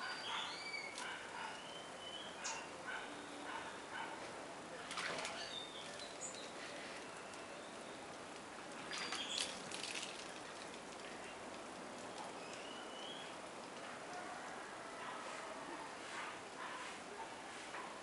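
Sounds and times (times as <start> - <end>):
bird chirps and clicks: 8.9 - 9.9, 12.0 - 14.2.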